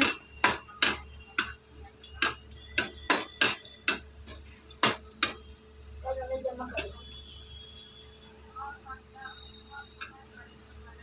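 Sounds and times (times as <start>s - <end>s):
metal spoon knocking on frying pan: 0.0s - 5.4s.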